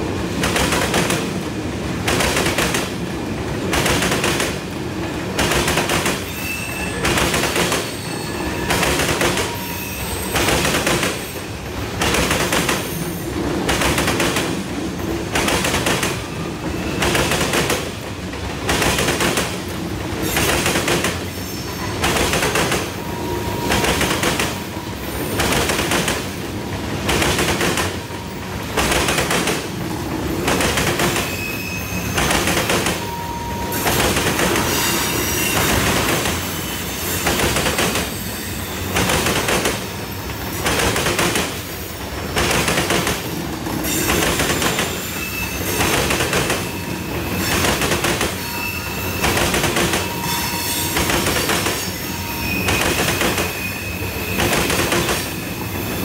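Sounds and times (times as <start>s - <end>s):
railroad cars rolling on track: 0.0s - 56.0s
faint wheel squeals: 6.3s - 7.1s.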